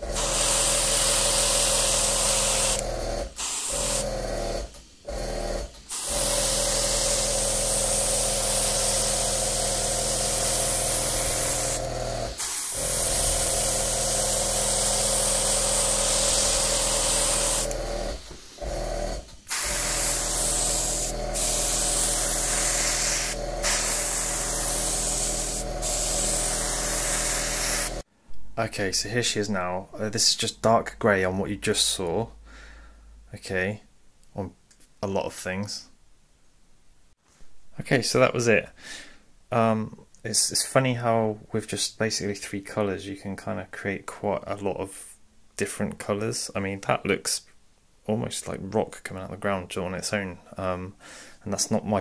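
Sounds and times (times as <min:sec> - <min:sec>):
airbrush spraying hiss: 0:00.0 - 0:18.6, 0:19.2 - 0:28.0
air compressor humming: 0:00.0 - 0:28.0.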